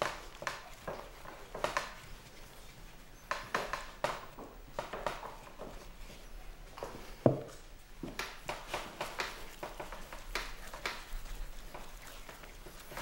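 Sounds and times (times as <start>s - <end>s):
hands slapping clay pot: 0.0s - 5.5s, 8.1s - 13.0s.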